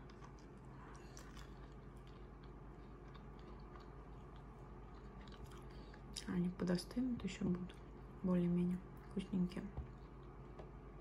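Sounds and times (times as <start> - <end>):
chewing: 0.0 - 6.3
low steady hum: 0.0 - 11.0.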